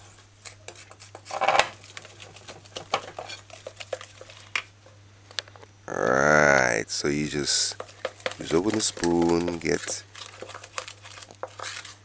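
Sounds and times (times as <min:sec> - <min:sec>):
spoon stirring thick batter: 0:00.0 - 0:04.6, 0:07.0 - 0:12.0.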